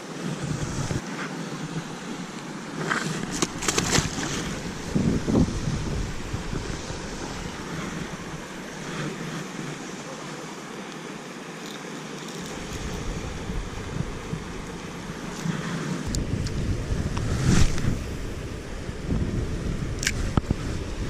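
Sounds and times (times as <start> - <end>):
wind buffeting microphone: 0.2 - 1.0, 1.6 - 9.8, 12.5 - 21.0.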